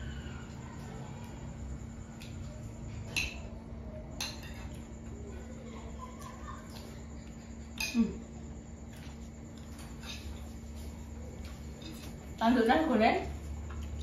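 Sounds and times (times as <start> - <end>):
steady low hum: 0.0 - 14.0
metal spoon clinking on plate: 3.0 - 3.5, 4.1 - 4.9, 7.7 - 8.1.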